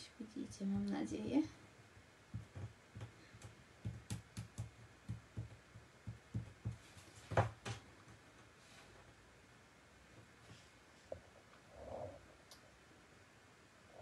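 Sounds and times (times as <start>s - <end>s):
soft low thumps: 2.3s - 7.8s.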